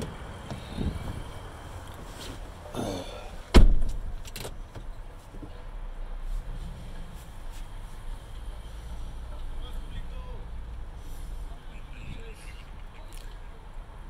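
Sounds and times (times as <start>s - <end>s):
car door slamming shut: 3.5s - 4.6s.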